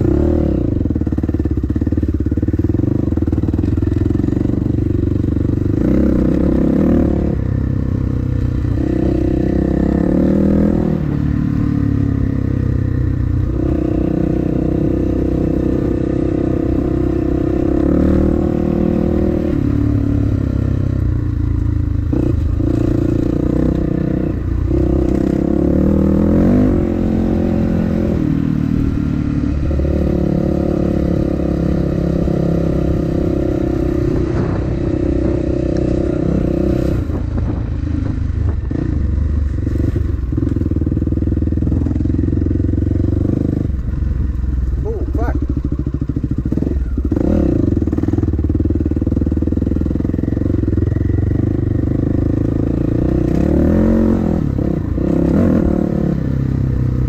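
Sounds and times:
dirt bike engine revving: 0.0s - 12.8s, 13.4s - 21.3s, 21.9s - 39.0s, 44.7s - 56.9s
bike knocking and rattling over bumps: 0.8s - 6.6s, 37.1s - 43.4s.

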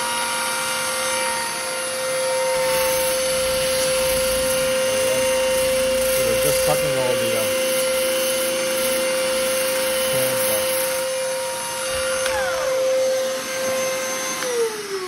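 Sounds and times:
rotary tool grinding paint: 0.0s - 13.1s
shop vacuum whining: 0.0s - 15.0s.

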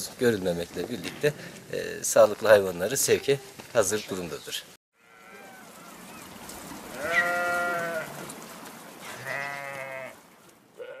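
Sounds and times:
sheep bleating: 5.0s - 6.1s, 7.0s - 8.2s, 9.1s - 10.2s, 10.8s - 11.0s.

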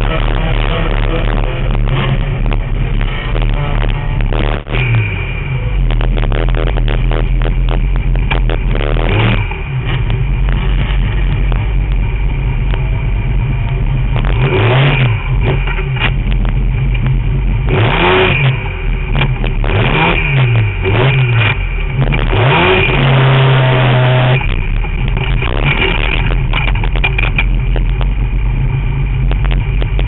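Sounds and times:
race car engine revving: 0.0s - 30.0s
wind and road rumble: 0.0s - 30.0s.

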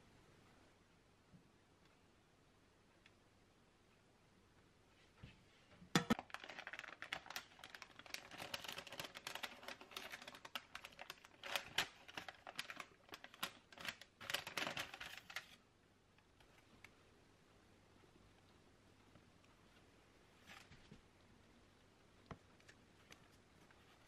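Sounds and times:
baking parchment crinkling: 6.1s - 15.6s.

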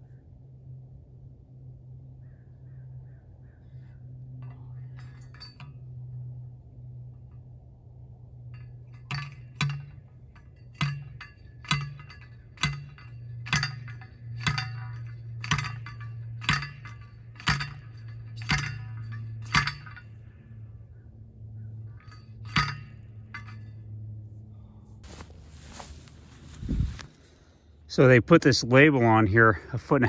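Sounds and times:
steady low hum: 0.0s - 30.0s
post driver striking post: 10.7s - 20.0s, 22.0s - 23.6s.

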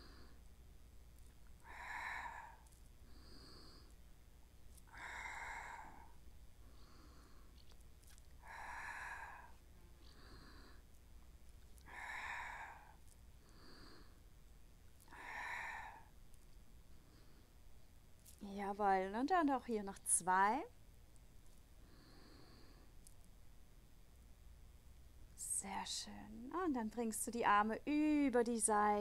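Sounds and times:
woman breathing audibly: 0.0s - 0.6s, 1.4s - 4.1s, 4.7s - 11.0s, 11.6s - 14.4s, 15.0s - 18.4s, 21.8s - 23.2s.

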